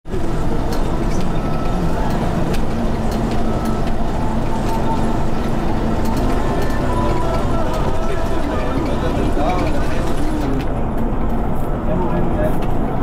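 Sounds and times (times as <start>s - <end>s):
engine and road rumble: 0.1s - 13.0s.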